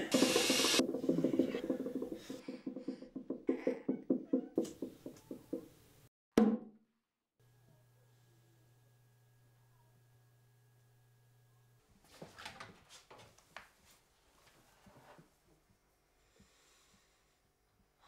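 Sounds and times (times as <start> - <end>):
burst of hiss: 0.0 - 0.8
hand drum strikes: 0.1 - 3.5.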